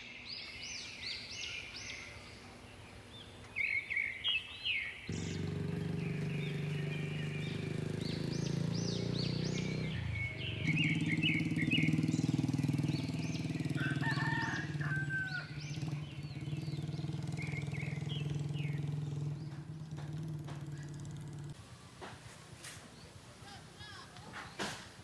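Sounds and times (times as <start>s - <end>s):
small birds chirping: 0.0s - 25.0s
motorcycle engine idling: 5.1s - 24.2s.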